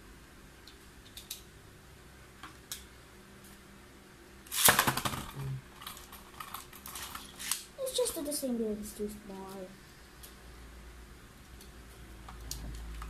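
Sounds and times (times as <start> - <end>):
launcher cord rapid clicking: 4.5 - 7.6.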